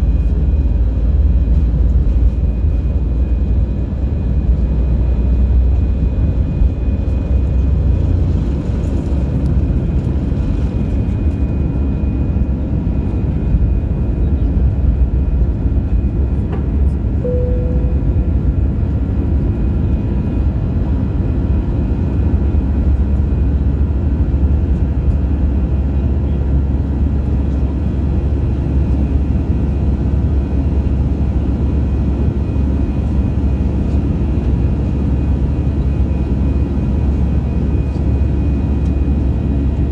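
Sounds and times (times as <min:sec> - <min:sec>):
jet engines rumbling in cabin: 0:00.0 - 0:39.9
short cabin tone: 0:17.2 - 0:18.7.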